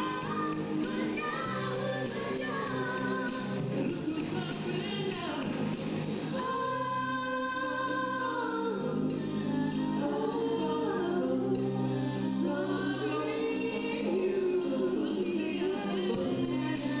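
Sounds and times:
choir singing long notes: 0:06.3 - 0:17.0.

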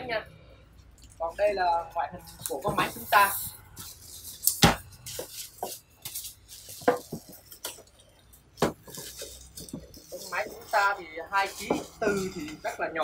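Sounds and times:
plastic bag and foam rustling: 0:01.3 - 0:13.0.

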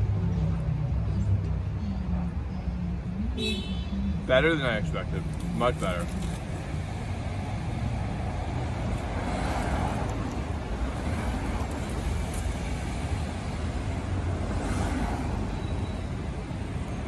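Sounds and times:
cars passing: 0:00.0 - 0:17.0.

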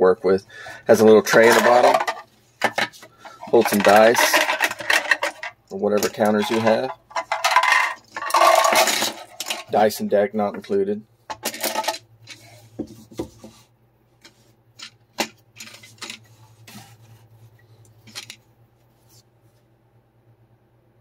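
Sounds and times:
plastic parts clicking and knocking: 0:01.3 - 0:09.8, 0:11.3 - 0:12.4, 0:14.2 - 0:16.2, 0:18.0 - 0:18.4.

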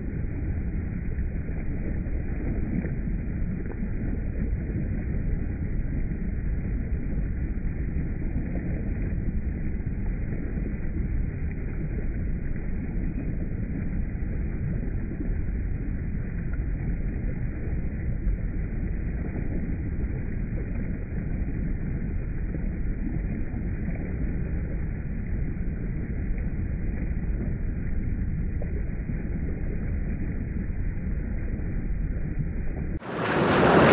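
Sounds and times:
water cascading over rocks: 0:33.0 - 0:33.9.

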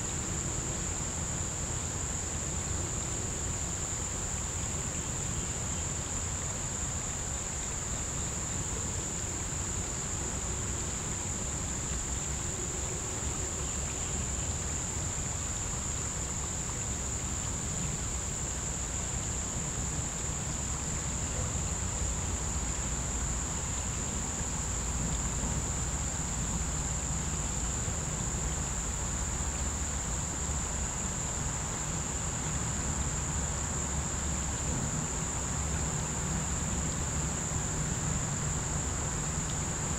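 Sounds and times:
insects chorusing: 0:00.0 - 0:39.9.

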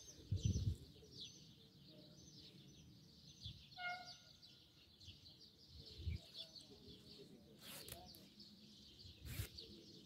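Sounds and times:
small birds chirping: 0:00.0 - 0:10.0
clear pitched bird call: 0:03.5 - 0:05.4, 0:06.0 - 0:10.0.

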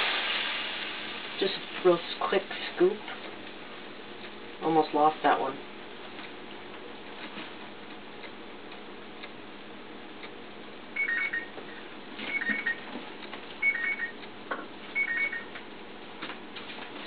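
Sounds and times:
electronic two-tone ringer trilling: 0:11.0 - 0:11.5, 0:12.3 - 0:12.8, 0:13.6 - 0:14.2, 0:15.0 - 0:15.5.

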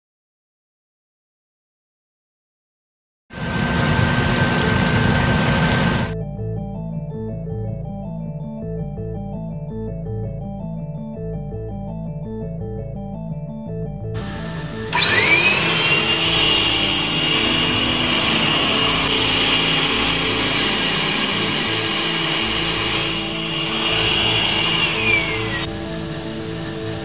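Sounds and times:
vacuum cleaner motor whine: 0:03.4 - 0:06.2, 0:14.2 - 0:27.0
background music: 0:06.1 - 0:27.0.

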